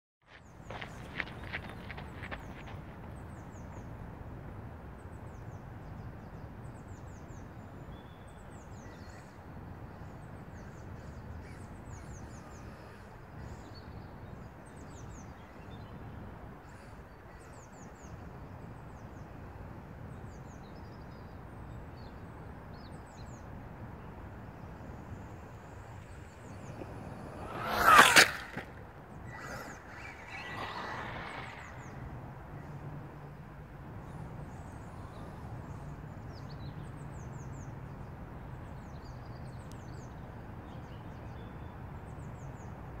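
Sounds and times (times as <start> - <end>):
small birds chirping: 0.3 - 4.0, 20.1 - 32.8.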